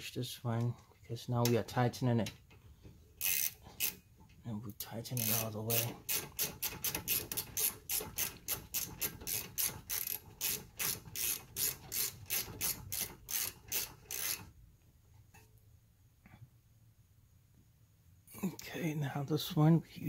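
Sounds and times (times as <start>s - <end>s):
ratchet wrench clicking: 3.2s - 4.0s, 5.1s - 14.5s.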